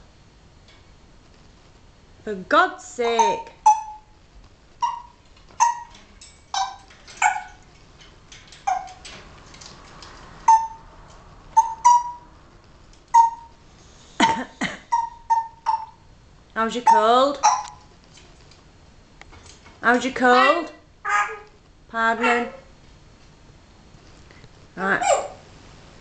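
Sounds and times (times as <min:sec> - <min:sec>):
parrot giving sharp calls: 0:03.2 - 0:04.1, 0:04.8 - 0:05.9, 0:08.7 - 0:09.0, 0:10.4 - 0:10.9, 0:11.5 - 0:12.3, 0:13.1 - 0:13.5, 0:14.3 - 0:16.0, 0:16.8 - 0:17.8, 0:20.3 - 0:21.5, 0:25.0 - 0:25.4.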